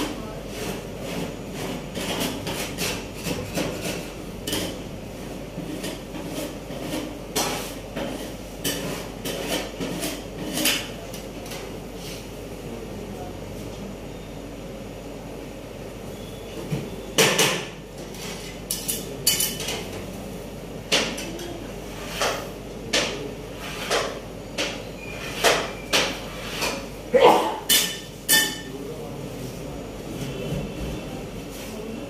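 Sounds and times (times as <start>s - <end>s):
metal spatula scraping steel plate: 0.5s - 4.8s, 5.6s - 11.0s, 23.5s - 24.2s, 24.9s - 28.6s.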